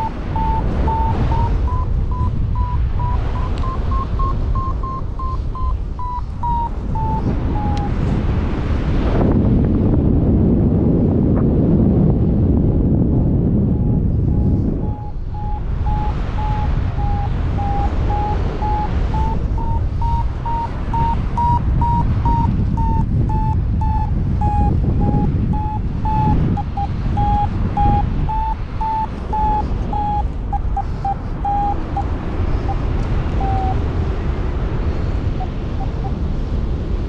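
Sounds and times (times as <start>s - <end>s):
variometer beeping: 0.0s - 8.0s, 13.8s - 34.0s
wind buffeting microphone: 0.0s - 37.0s.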